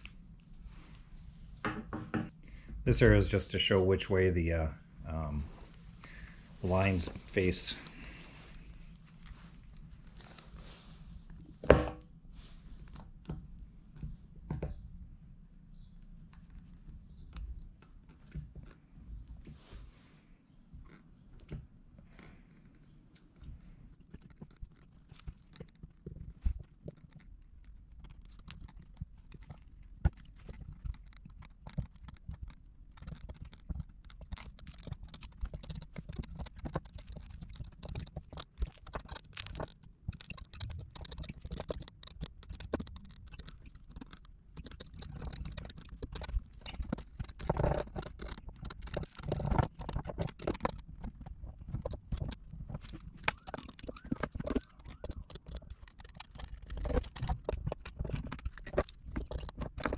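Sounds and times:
sharp clicks: 28.0 - 59.9.

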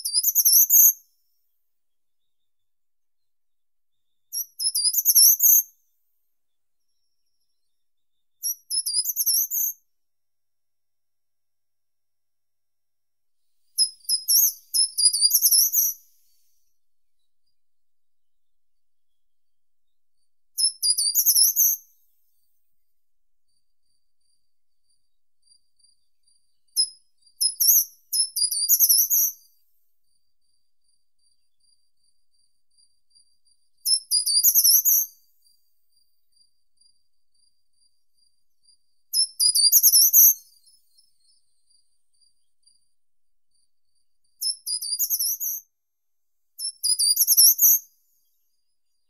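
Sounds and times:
bird singing high phrases: 8.4 - 9.8, 13.8 - 16.6, 20.6 - 21.8, 39.1 - 41.4, 44.4 - 45.6, 46.6 - 47.8.

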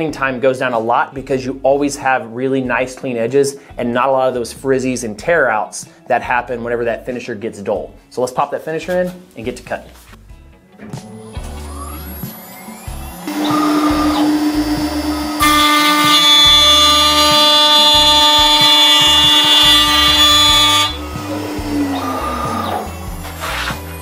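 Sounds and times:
shrill cutting tone: 11.0 - 24.0
router spindle whine: 11.1 - 24.0.

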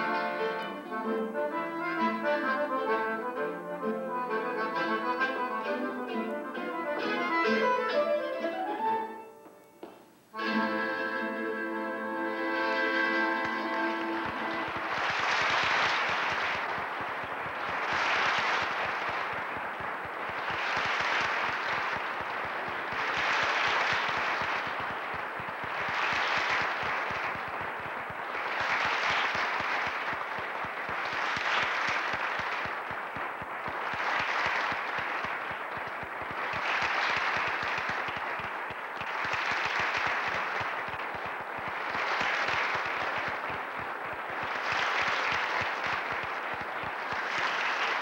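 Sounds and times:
audience applauding: 12.2 - 48.0.

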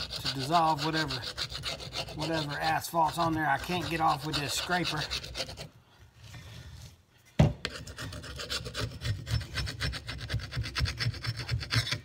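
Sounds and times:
chisel scraping metal: 0.0 - 6.4, 7.6 - 12.0.

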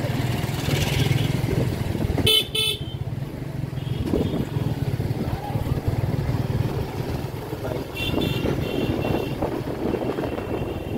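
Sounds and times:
low rumble of motor traffic: 0.0 - 10.9
vehicle horn beeping: 2.2 - 3.0, 7.9 - 10.9.

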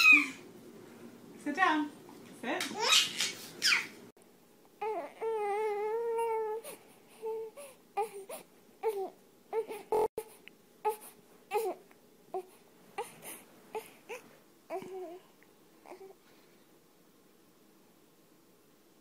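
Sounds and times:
newborn baby crying: 0.0 - 0.4, 4.8 - 10.2, 10.8 - 16.2.

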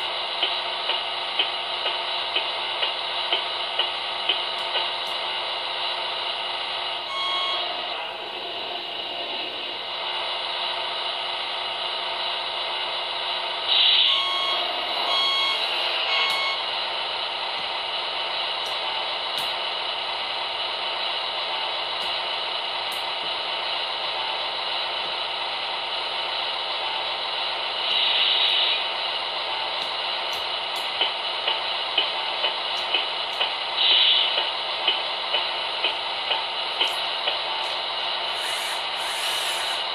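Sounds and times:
diesel engine running sound: 0.0 - 39.9
reversing beeper: 7.1 - 8.0, 14.0 - 16.7
short noisy bursts: 38.3 - 39.9.

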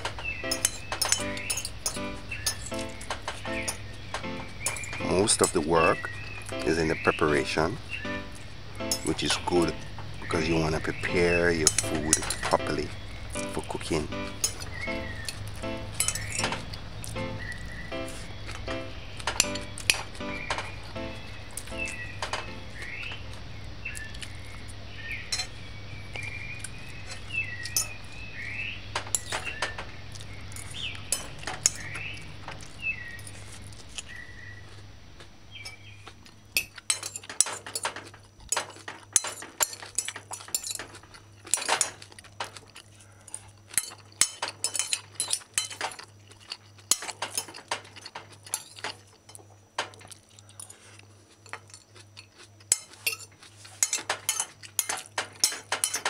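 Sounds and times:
fork clinking on a ceramic plate: 0.5 - 3.8, 8.9 - 9.3, 11.1 - 12.8, 13.4 - 17.2, 25.3 - 25.6, 27.1 - 28.1, 29.0 - 29.8, 30.6 - 31.9, 36.6 - 42.6, 43.3 - 50.0, 51.4 - 56.0.

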